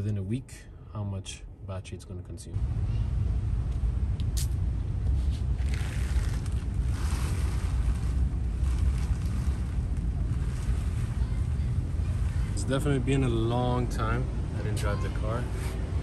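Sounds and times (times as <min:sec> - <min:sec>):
low rumble: 0:02.4 - 0:16.0
fabric cover rustling: 0:05.2 - 0:12.8.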